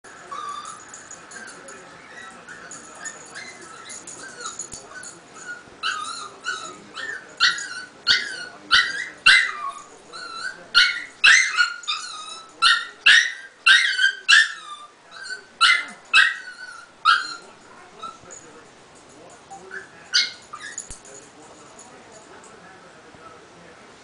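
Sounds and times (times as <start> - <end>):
dog whining and yelping: 0.3 - 0.9, 2.0 - 17.4, 19.8 - 20.9.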